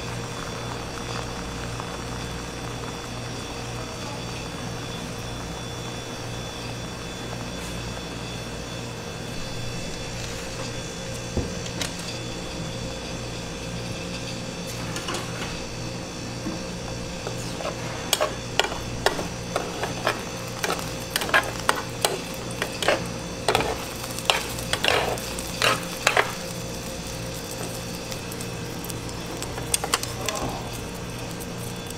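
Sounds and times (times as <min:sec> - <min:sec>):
egg sizzling: 0:00.0 - 0:31.9
plastic spatulas scraping a pan: 0:17.3 - 0:26.4.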